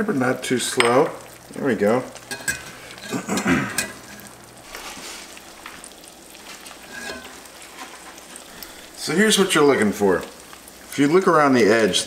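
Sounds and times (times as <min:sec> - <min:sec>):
eggs sizzling in a skillet: 0:00.0 - 0:12.0.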